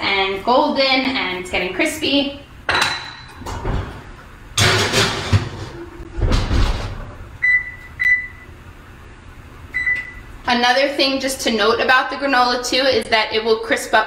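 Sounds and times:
oven door shutting with a thump: 4.6s - 7.2s.

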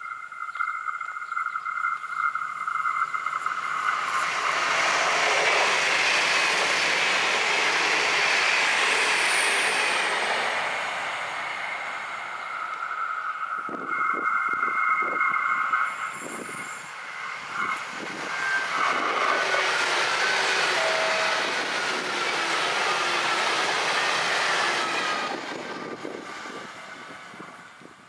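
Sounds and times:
engine whines: 0.0s - 28.0s
train rushing past: 2.3s - 28.0s
wind buffeting microphone: 13.5s - 20.4s, 21.2s - 28.0s
two-tone train horn: 20.2s - 21.7s.

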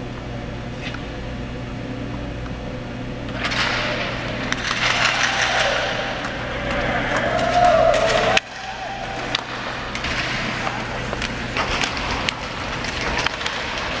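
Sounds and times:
hollow rink ambience: 0.0s - 14.0s
hockey sticks and pucks clacking: 3.3s - 14.0s
skates scraping on ice: 3.4s - 14.0s.

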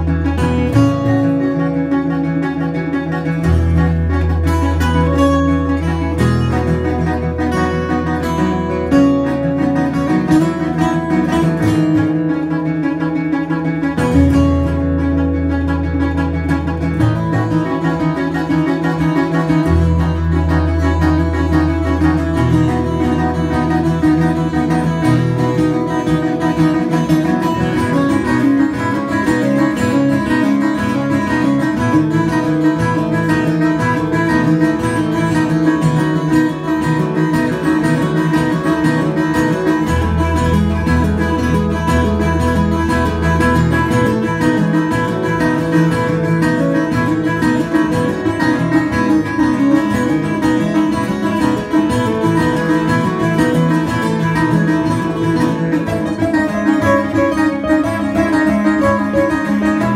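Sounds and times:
acoustic guitar duet: 0.0s - 59.9s.

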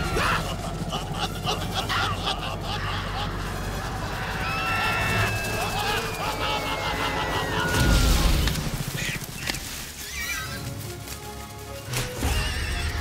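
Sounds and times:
dramatic film score: 0.0s - 13.0s
shrill warbling animal cries: 4.4s - 7.9s, 10.0s - 10.6s
low rumbling hit: 7.5s - 9.0s.

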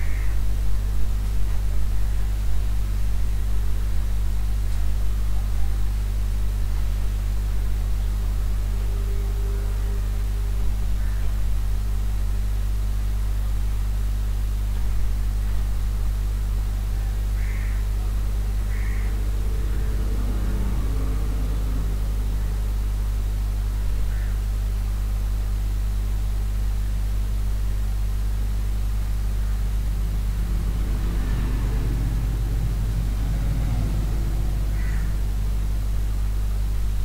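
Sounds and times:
low electrical hum: 0.0s - 37.0s.

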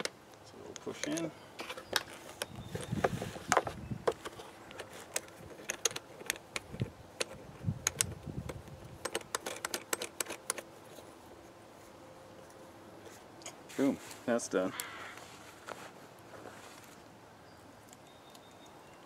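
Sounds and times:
plastic hose fitting clicks and rattles: 0.0s - 1.3s, 1.9s - 10.7s.

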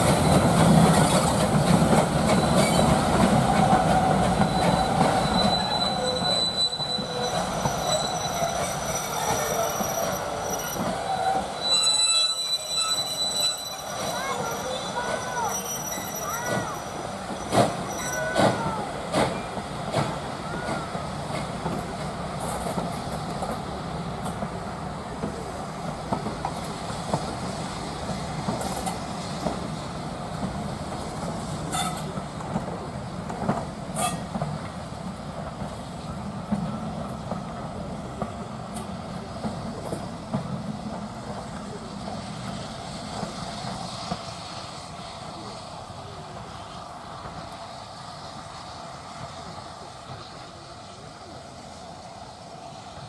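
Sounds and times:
train wheels clattering over rails: 0.0s - 44.5s
wheel squeal: 2.2s - 3.0s, 3.9s - 18.6s.

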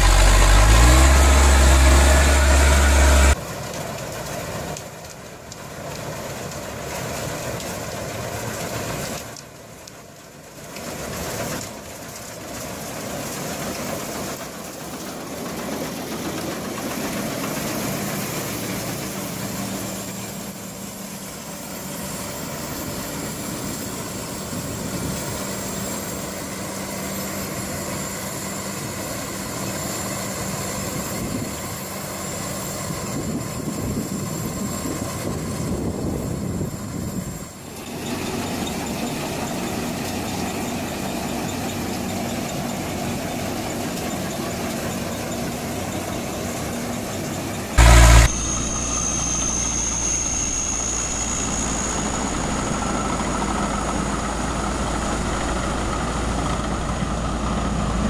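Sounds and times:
harvesting machinery running: 0.0s - 58.0s
loud burst: 47.8s - 54.7s.

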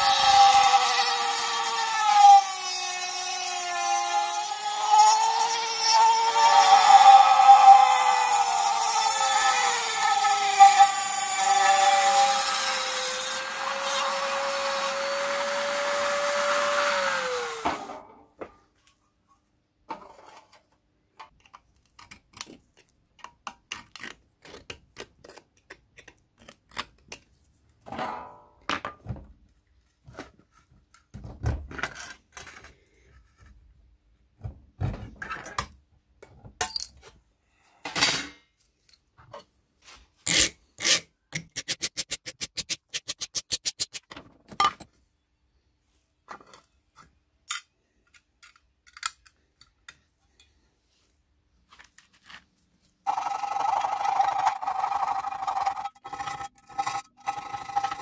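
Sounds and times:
rotary tool grinding metal: 0.0s - 17.9s, 53.1s - 58.0s
hand tools scraping thin metal: 40.2s - 44.1s, 53.8s - 58.0s.

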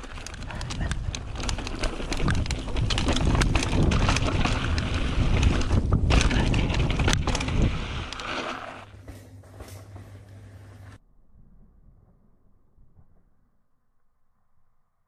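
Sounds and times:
mountain bike rattling on trail: 0.0s - 8.8s
low steady hum: 0.0s - 15.0s.

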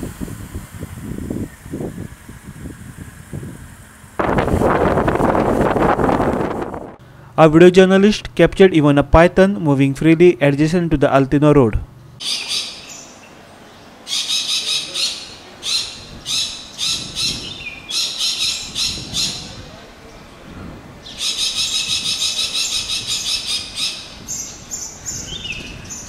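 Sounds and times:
chattering bird calls: 12.2s - 20.2s, 21.0s - 26.0s.

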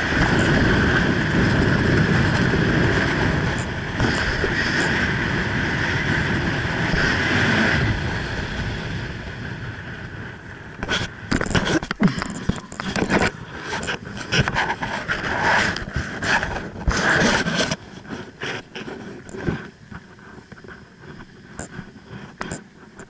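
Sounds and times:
wind rushing over microphone: 0.0s - 23.0s.

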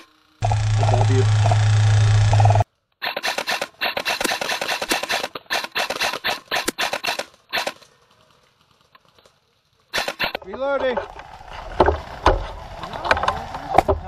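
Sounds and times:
loud steady sound: 0.0s - 7.7s
airsoft rifle firing bursts: 0.0s - 8.0s, 9.9s - 10.4s.

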